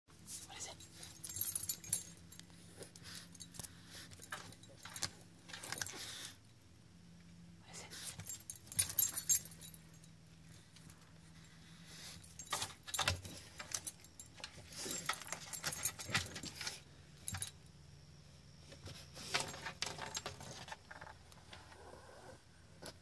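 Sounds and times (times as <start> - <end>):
dog collar tags jingling: 0.6 - 6.0, 8.1 - 11.4, 12.1 - 17.7.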